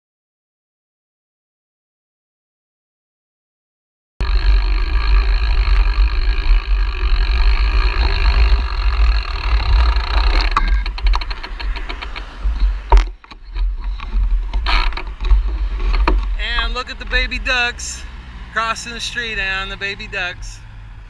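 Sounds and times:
bicycle freewheel ticking: 4.2 - 13.0
wind rumbling on microphone: 4.2 - 18.4.

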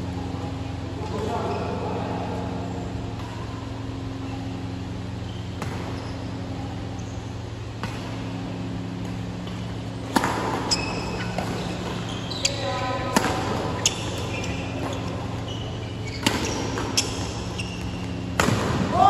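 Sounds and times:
low hum in large hall: 0.0 - 19.0
racket hitting shuttlecock: 5.0 - 6.9, 7.7 - 12.1, 13.0 - 19.0.

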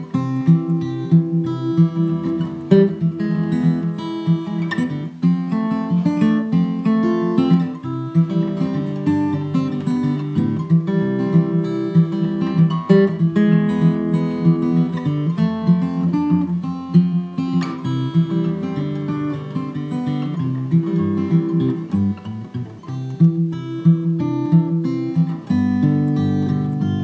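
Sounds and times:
acoustic guitar music: 0.0 - 27.0.

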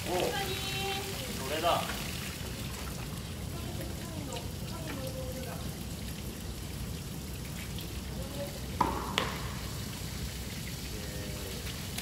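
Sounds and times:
hose water pattering on plastic: 0.0 - 12.0
sharp knocks: 8.8 - 9.7.

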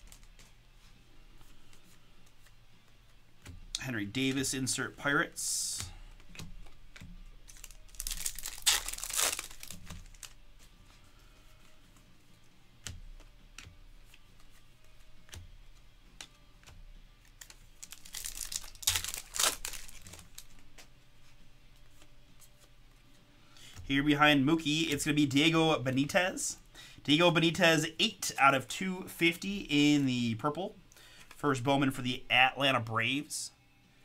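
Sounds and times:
trading cards rustling: 0.0 - 3.2, 4.0 - 26.1.

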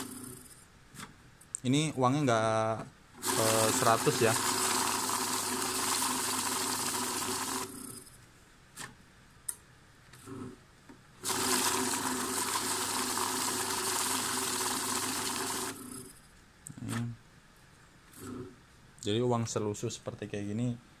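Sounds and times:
banknote counter whirring: 3.2 - 8.1, 11.2 - 16.2.

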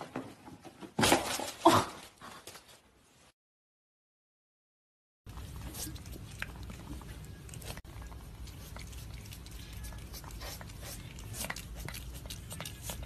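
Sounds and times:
pet chewing crunchily: 5.3 - 13.0.

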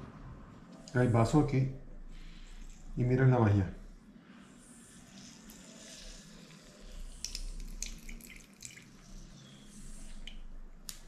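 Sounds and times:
juice dripping into glass: 5.0 - 11.0.

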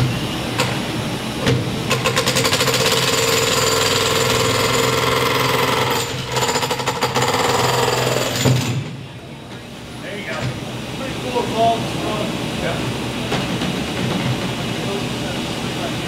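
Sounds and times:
jackhammer chiselling concrete: 1.9 - 8.7.

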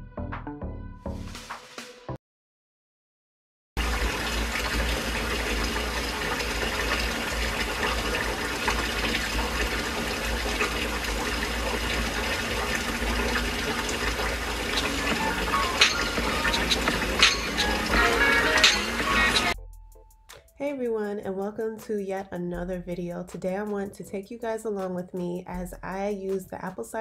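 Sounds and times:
tap water running: 3.8 - 19.6.

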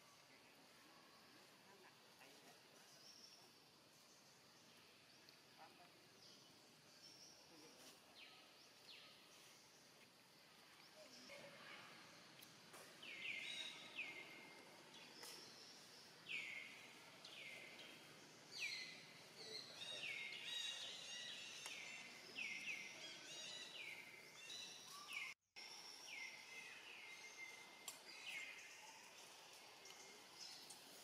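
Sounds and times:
bird chirping: 12.4 - 31.0.

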